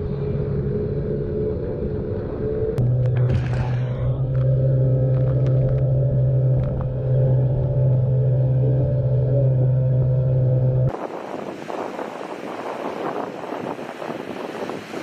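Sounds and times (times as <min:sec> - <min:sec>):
outboard motor drone: 0:00.0 - 0:15.0
wind: 0:00.0 - 0:15.0
surf: 0:10.0 - 0:15.0.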